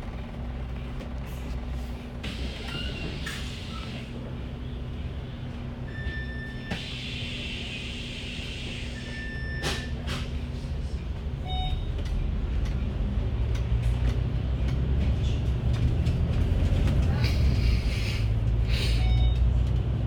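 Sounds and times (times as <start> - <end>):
bus engine drone: 0.0 - 20.0.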